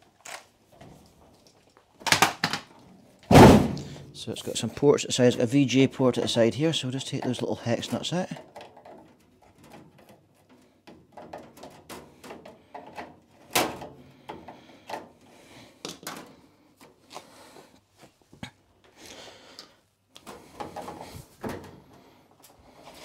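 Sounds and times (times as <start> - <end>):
sharp knock: 3.3 - 4.0.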